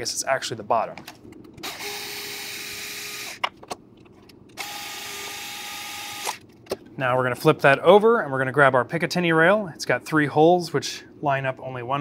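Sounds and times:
power screwdriver whirring: 1.6 - 3.4, 4.6 - 6.4.

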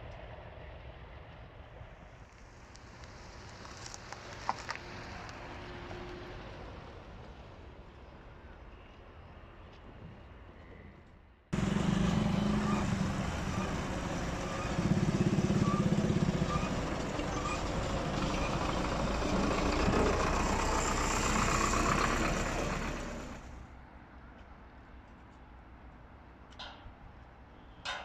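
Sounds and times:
diesel tractor engine chugging: 11.6 - 23.6.

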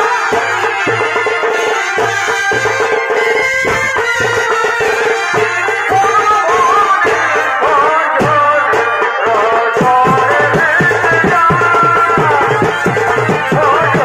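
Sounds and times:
drums beating steady rhythm: 0.0 - 14.0.

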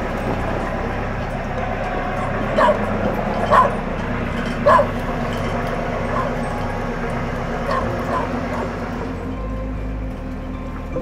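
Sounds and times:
low boat engine drone: 0.0 - 11.0
dog barking: 2.2 - 5.4, 6.0 - 6.5, 7.7 - 8.8.

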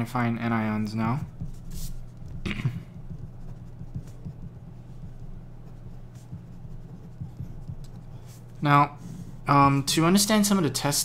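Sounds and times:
marker pen writing: 1.0 - 9.4.

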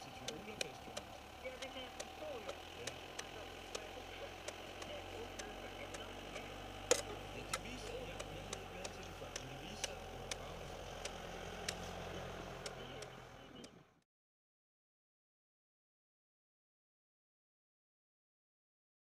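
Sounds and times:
sharp ticks and clicks: 0.0 - 12.0, 12.6 - 13.8
low steady hum: 0.0 - 14.0.

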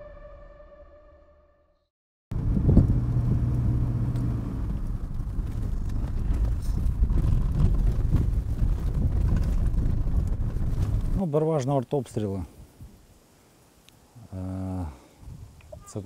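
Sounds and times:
car engine and tyres rumbling: 2.3 - 11.2.

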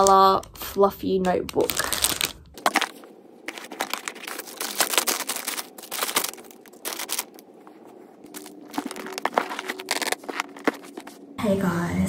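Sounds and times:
plastic wrapping crinkling: 0.0 - 0.6, 1.2 - 11.4
items tapping cardboard box: 8.3 - 11.2.

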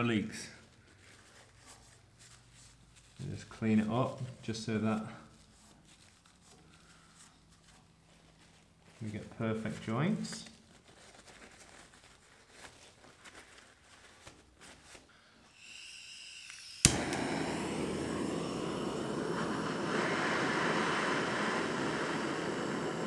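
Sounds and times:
gas hissing from blowtorch: 15.5 - 23.0
blowtorch lighting pop: 16.4 - 23.0
torch flame rushing: 16.8 - 23.0.

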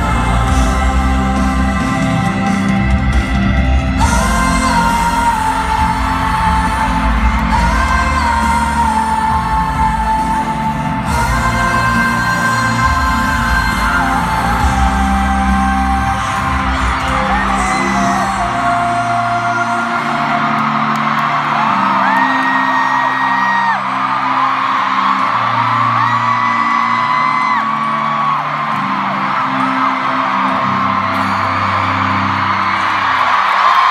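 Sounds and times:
man singing long notes: 0.0 - 21.0
pop backing track with bass: 0.0 - 28.4
audience screaming and whooping: 0.0 - 33.9.

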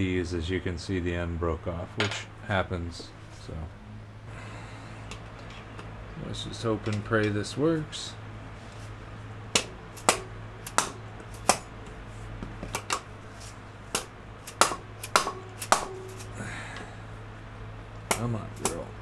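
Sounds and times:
hammer striking impact driver: 9.6 - 11.7, 13.9 - 16.3.

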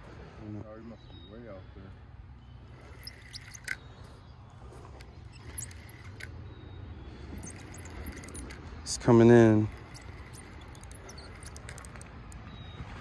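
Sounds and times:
outdoor background rumble: 1.1 - 13.0
small sharp clicks: 2.8 - 3.8, 5.0 - 6.3, 7.4 - 8.6, 9.7 - 12.5.

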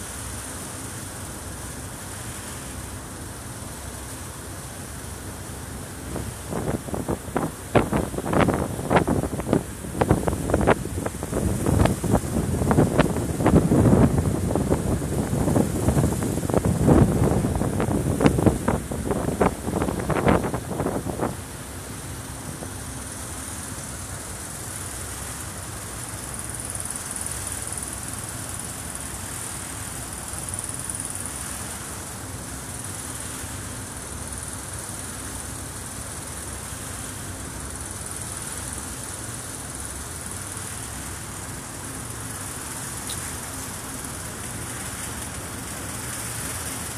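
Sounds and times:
wake churning: 5.8 - 23.0.

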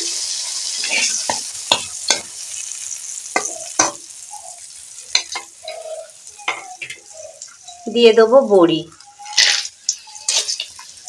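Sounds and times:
oil sizzling: 0.0 - 11.0
metal spatula scraping pan: 9.3 - 10.9.

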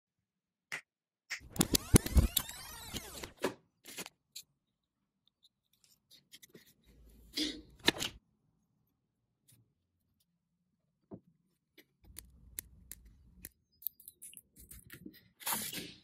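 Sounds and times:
punch-down tool clicking and scraping: 1.4 - 3.3
small clicks: 1.4 - 3.3.

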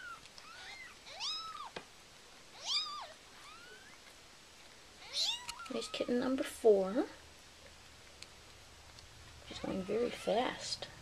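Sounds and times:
kittens mewing: 0.0 - 1.8, 5.0 - 6.2.

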